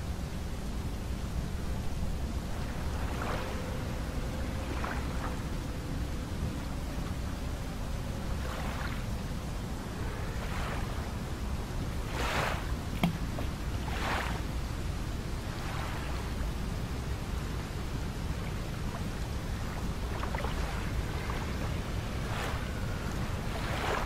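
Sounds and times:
steady low rumble: 0.0 - 24.0
washes of water: 1.9 - 11.5, 12.1 - 14.7, 15.4 - 16.6, 18.1 - 24.0.

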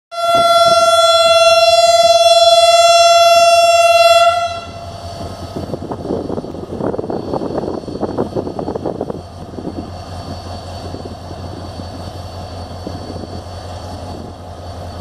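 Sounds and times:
locomotive horn blast: 0.1 - 5.0.

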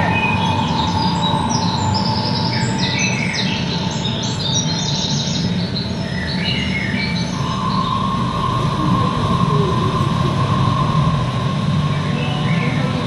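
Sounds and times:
birdsong chirps over speakers: 0.0 - 8.8, 11.5 - 13.0
steady low hum: 0.0 - 13.0.

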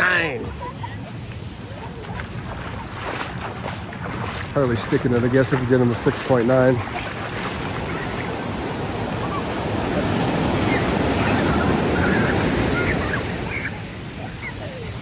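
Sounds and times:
ocean surf breaking on sand: 0.0 - 15.0.

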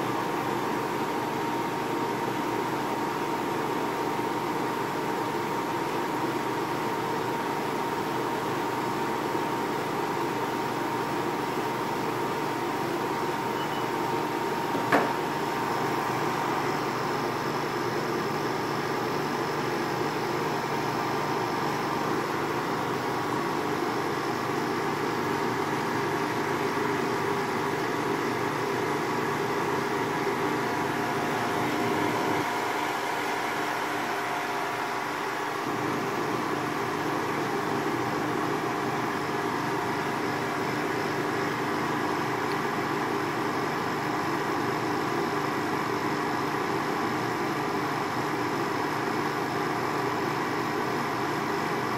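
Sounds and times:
air conditioner humming: 0.0 - 48.3
sharp knock: 14.8 - 15.2.

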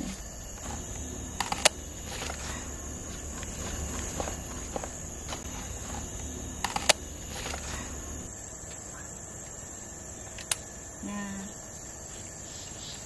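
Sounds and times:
crickets chirring: 0.0 - 13.0
sharp clicks: 0.6 - 8.8, 10.3 - 10.6.

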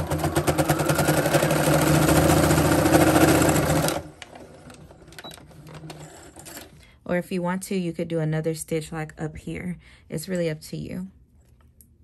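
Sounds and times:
sewing machine stitching: 0.0 - 6.7.

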